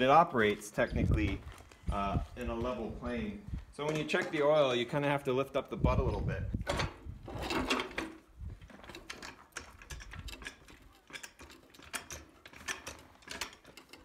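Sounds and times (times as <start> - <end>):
floor jack clicking and clunking: 6.5 - 14.0.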